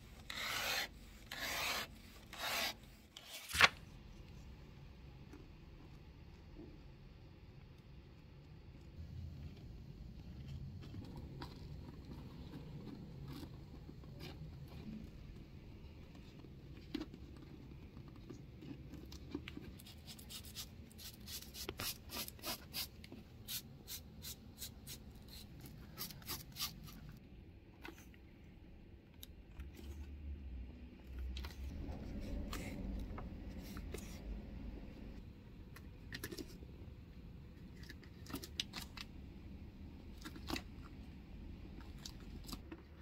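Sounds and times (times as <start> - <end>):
wire brush scraping leather: 0.2 - 3.5.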